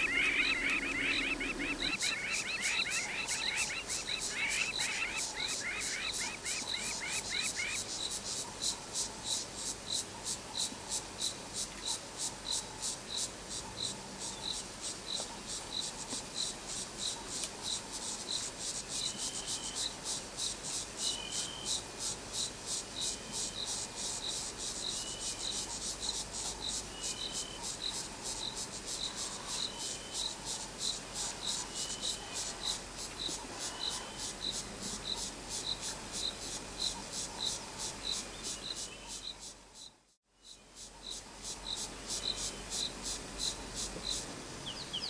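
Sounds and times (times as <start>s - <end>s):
short higher insect call: 0.0s - 8.1s
insect chirping: 0.0s - 45.0s.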